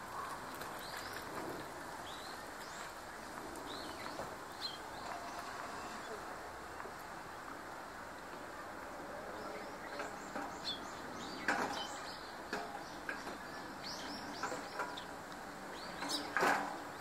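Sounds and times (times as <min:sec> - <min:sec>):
steady background noise: 0:00.0 - 0:17.0
sparrows chirping: 0:02.0 - 0:06.2, 0:09.3 - 0:16.9.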